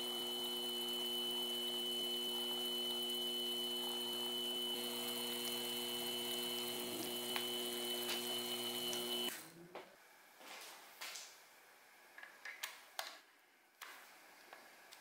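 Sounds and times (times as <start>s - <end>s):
drill boring into metal: 0.0s - 9.3s
machine spindle hum and whine: 0.0s - 9.3s.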